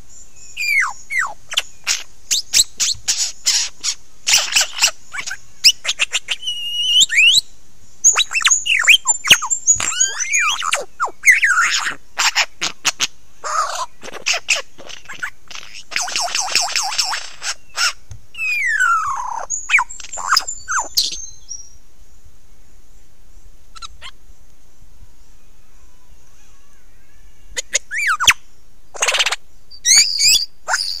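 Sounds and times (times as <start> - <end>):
faint steady high hiss: 0.0 - 31.0
bird song whistles and clicks: 0.5 - 7.4, 8.0 - 13.1, 14.1 - 21.7, 27.6 - 28.4, 29.0 - 31.0.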